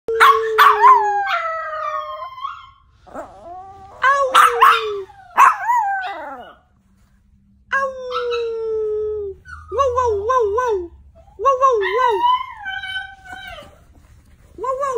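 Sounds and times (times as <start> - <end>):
dog yipping: 0.2 - 2.8, 4.3 - 6.6, 11.2 - 14.0.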